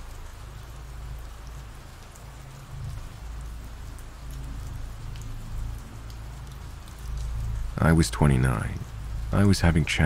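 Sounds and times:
steady rain hiss: 0.0s - 10.0s.

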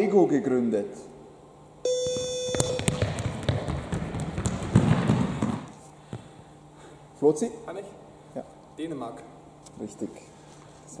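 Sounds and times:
steady beep: 1.8s - 3.0s
sneaker squeaks on hall floor: 1.9s - 5.7s
running footsteps: 2.0s - 6.3s.

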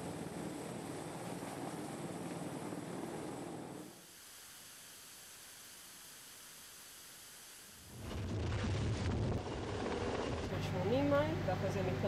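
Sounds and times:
helicopter hovering overhead: 0.0s - 3.9s, 8.0s - 12.0s
faint steady hiss: 0.0s - 8.0s.

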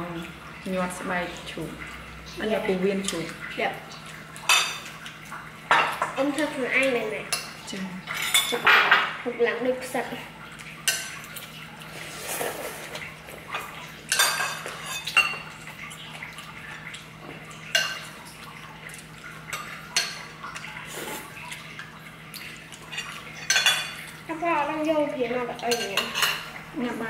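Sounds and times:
utensils clinking on bowls: 8.1s - 9.2s, 12.6s - 15.6s, 22.9s - 24.1s, 25.6s - 26.9s.

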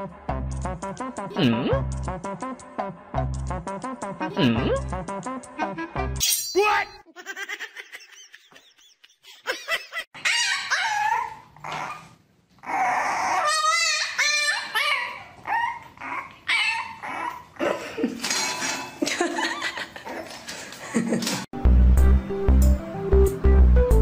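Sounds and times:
dog whining and yipping: 10.2s - 17.6s.

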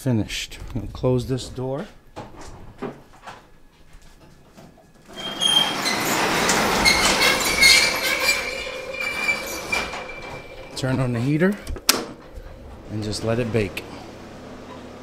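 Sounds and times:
rolling door rattling shut: 0.5s - 3.7s, 5.0s - 14.7s
thin squeal: 5.2s - 11.1s.

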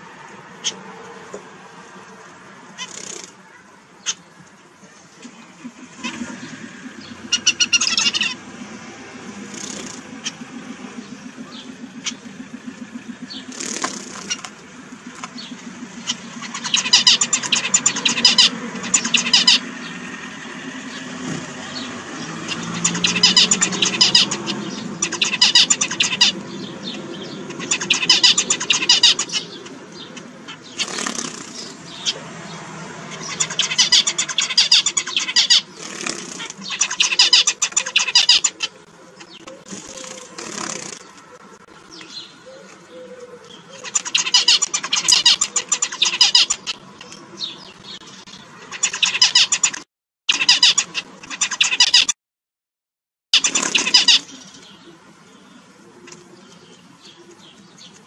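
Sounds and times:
finches singing: 1.8s - 52.2s, 53.4s - 58.0s
low background hum: 4.3s - 46.8s.

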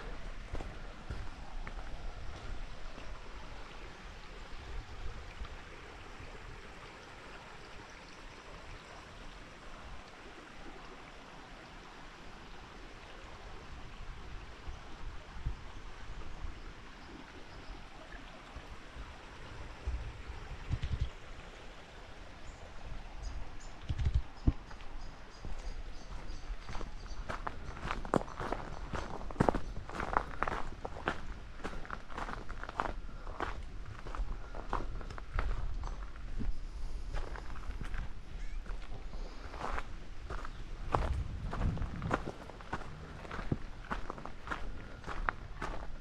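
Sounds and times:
footsteps on trail: 0.0s - 3.2s, 24.1s - 46.0s
running water: 0.0s - 46.0s.

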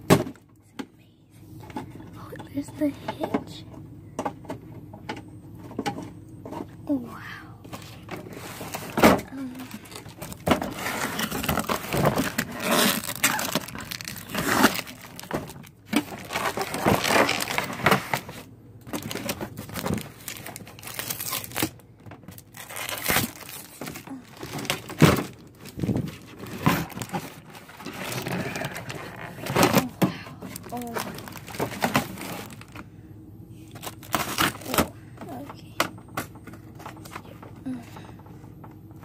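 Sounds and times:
packaging crinkling and rustling: 7.7s - 32.9s, 33.7s - 35.4s.

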